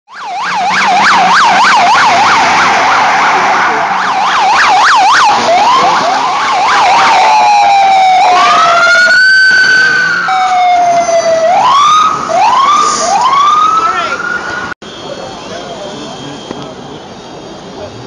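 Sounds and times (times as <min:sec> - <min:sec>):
emergency siren: 0:00.1 - 0:17.6.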